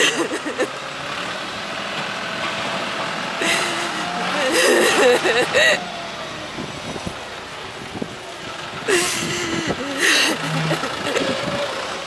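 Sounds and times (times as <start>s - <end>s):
vehicle engine running: 0.3s - 12.0s
woman crying and wailing: 3.4s - 5.9s, 8.9s - 11.8s
sharp sobbing breaths: 8.9s - 11.7s.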